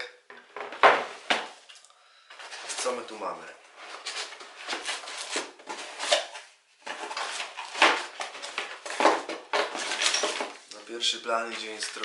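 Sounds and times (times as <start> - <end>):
cardboard rustling and scraping: 2.3 - 10.7.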